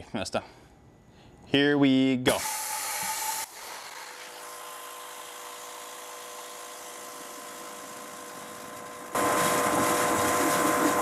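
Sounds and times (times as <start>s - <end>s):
pressure washer motor whine: 2.4s - 11.0s
water jet hissing into bucket: 9.1s - 11.0s.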